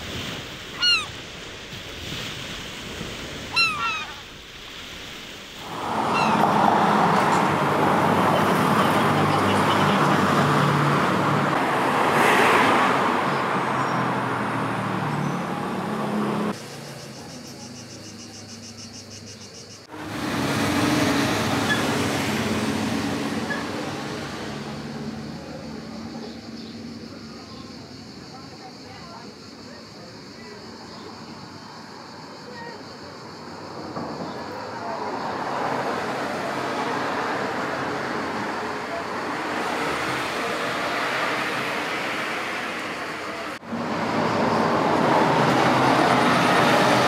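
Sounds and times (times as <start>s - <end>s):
road traffic: 0.0s - 47.0s
bird calls: 0.8s - 1.2s, 3.4s - 4.4s, 6.0s - 7.5s, 16.6s - 19.9s
vehicle passing: 5.6s - 18.9s, 19.8s - 27.2s, 33.5s - 47.0s.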